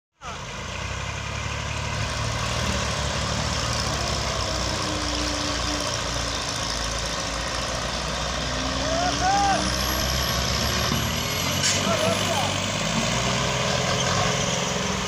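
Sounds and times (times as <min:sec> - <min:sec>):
loader engine running: 0:00.2 - 0:15.0
tractor engine straining: 0:00.2 - 0:15.0.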